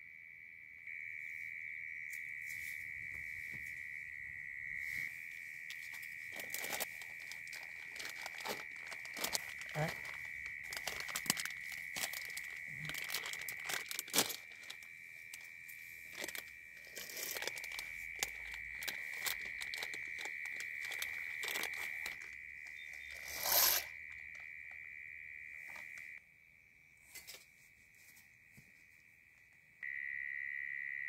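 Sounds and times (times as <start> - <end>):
plastic and paper crinkling: 5.7 - 15.5, 16.1 - 24.4
packet tearing: 6.3 - 14.8, 16.2 - 22.4, 23.0 - 24.4.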